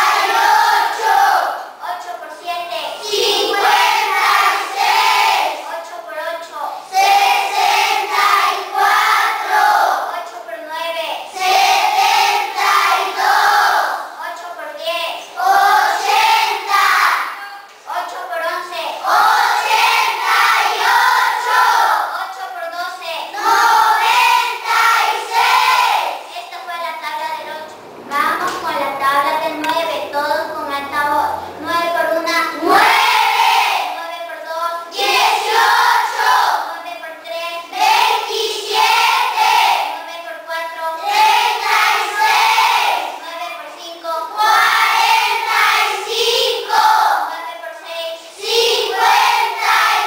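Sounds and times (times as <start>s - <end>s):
children chanting in unison: 0.0s - 1.8s, 2.9s - 5.6s, 6.8s - 10.1s, 11.2s - 14.2s, 15.2s - 17.5s, 18.9s - 22.1s, 23.3s - 26.3s, 32.5s - 34.0s, 34.8s - 36.8s, 37.6s - 40.1s, 41.0s - 43.2s, 44.2s - 47.3s, 48.1s - 50.0s.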